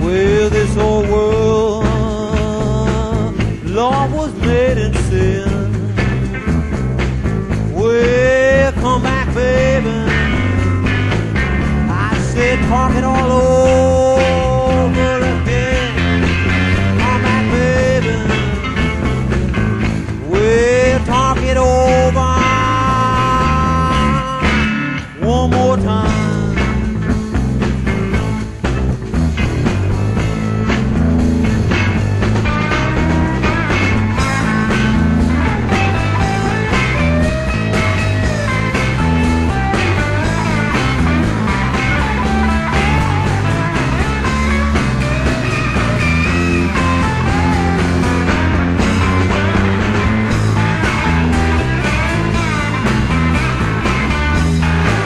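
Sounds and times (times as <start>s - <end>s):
bass: 0.0s - 55.0s
drums: 0.0s - 55.0s
electric lead guitar solo: 26.8s - 55.0s.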